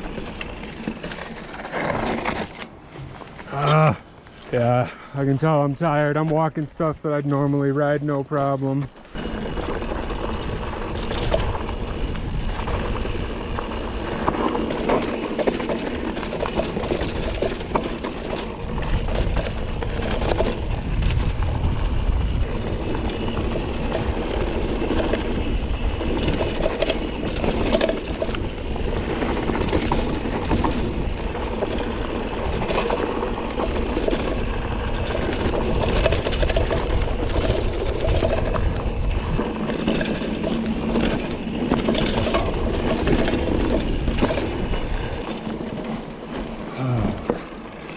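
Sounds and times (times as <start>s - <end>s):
bike rattling and knocking: 0.0s - 3.5s, 5.3s - 47.9s
tyres crunching over gravel: 0.0s - 47.9s
wind rumble on microphone: 9.2s - 45.4s.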